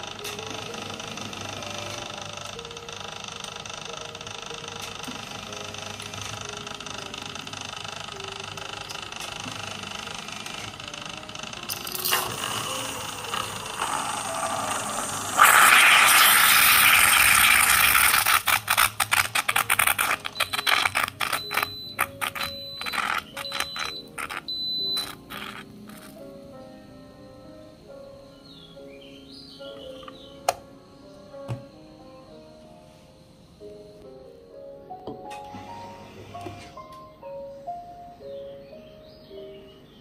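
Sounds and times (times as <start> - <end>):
coffee maker crackling and spitting: 11.7 - 26.2
moka coffee maker hissing and gurgling: 12.0 - 20.6.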